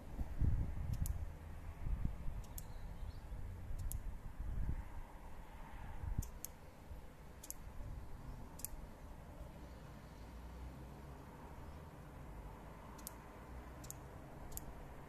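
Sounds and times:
flashlight ring clicking: 13.8s - 14.7s.

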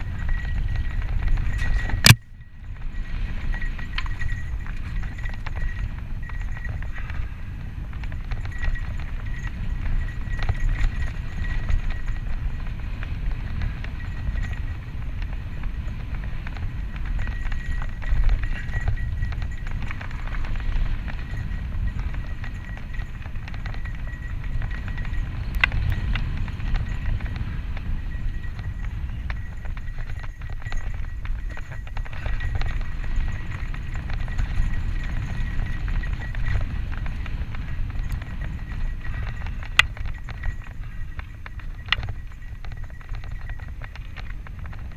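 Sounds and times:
bike chain and frame rattling: 0.0s - 44.9s
bike tyres on dirt: 0.0s - 44.9s
wind buffeting microphone: 0.0s - 44.9s.

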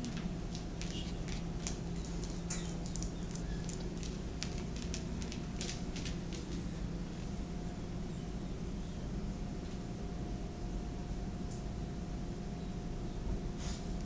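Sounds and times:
dog claws clicking on vinyl floor: 0.0s - 6.8s
low room hum: 0.0s - 14.0s.

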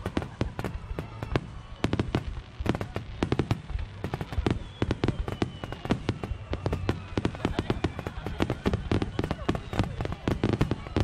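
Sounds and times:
fireworks bursting with booms: 0.0s - 11.0s
fireworks crackle: 0.0s - 11.0s
falling whistle: 4.4s - 10.0s.

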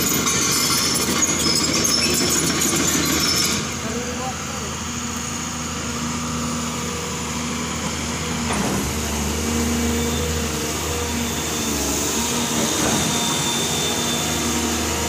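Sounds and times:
excavator diesel engine running: 0.0s - 15.0s
thin high hydraulic whine: 9.9s - 15.0s.

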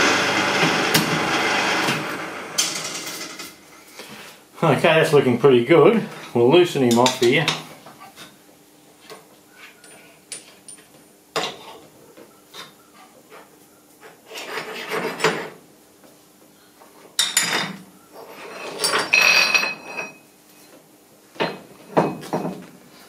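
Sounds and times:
metallic ring: 18.6s - 20.3s.

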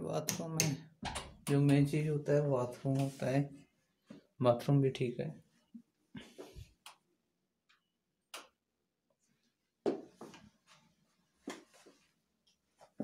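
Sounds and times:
knocks and clicks in tiled room: 0.1s - 2.0s, 5.7s - 13.0s.

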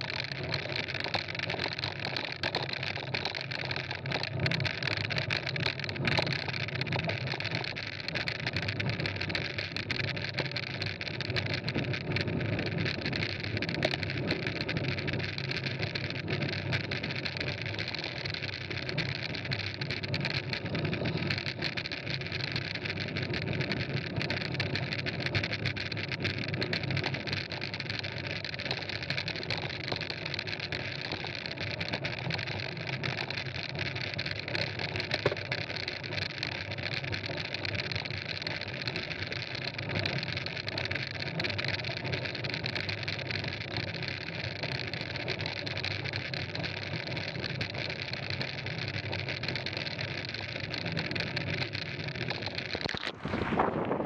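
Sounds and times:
bike tyres rolling on gravel: 50.6s - 54.0s
wind rushing: 53.0s - 54.0s.

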